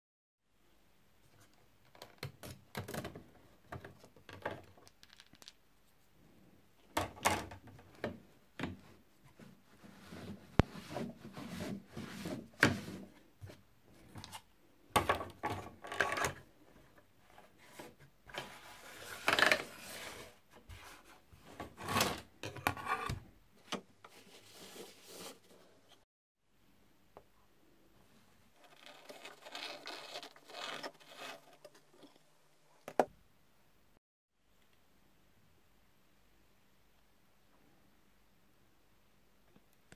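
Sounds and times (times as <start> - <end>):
plastic gear sliding scrapes: 28.5 - 32.4.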